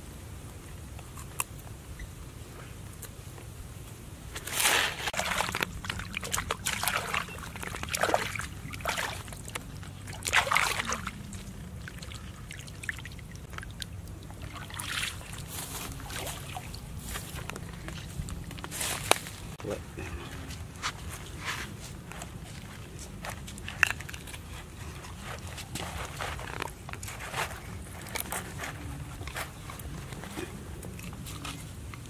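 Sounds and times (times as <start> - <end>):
muddy water splashing: 4.4 - 19.6.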